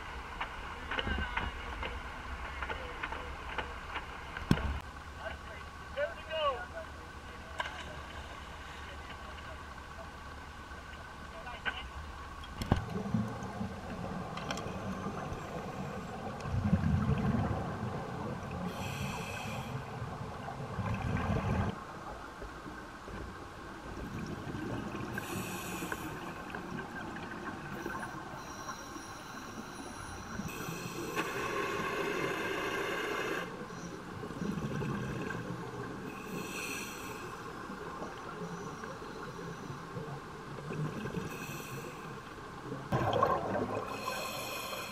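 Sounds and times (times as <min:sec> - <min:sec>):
exhaled bubbles rumbling: 0:12.6 - 0:18.8, 0:19.8 - 0:22.2, 0:23.8 - 0:25.4, 0:34.1 - 0:36.1, 0:42.6 - 0:44.1
regulator inhale hiss: 0:18.7 - 0:19.9, 0:25.1 - 0:26.4, 0:28.4 - 0:33.7, 0:36.1 - 0:37.5, 0:41.3 - 0:42.3, 0:43.9 - 0:44.9.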